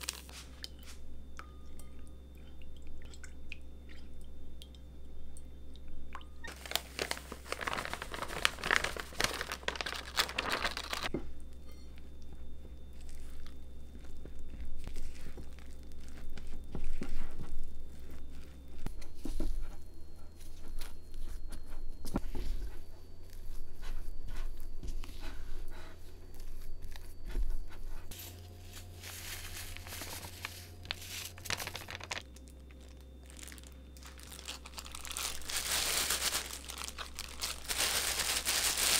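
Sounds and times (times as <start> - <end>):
plastic crinkling: 0.0 - 0.4, 6.4 - 11.1, 27.9 - 38.9
steady low hum: 0.0 - 38.9.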